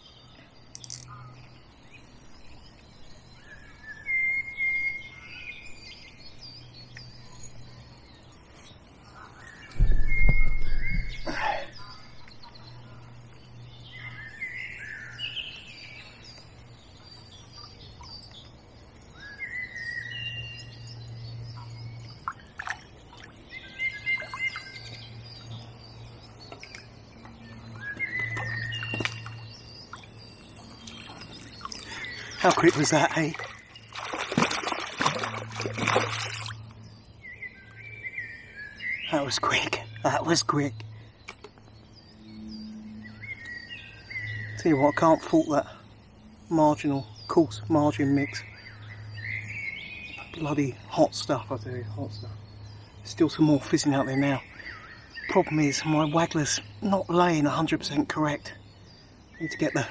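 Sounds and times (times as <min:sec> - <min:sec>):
birds singing and chirping: 0:00.0 - 0:59.9
loud low thump: 0:09.8 - 0:11.3.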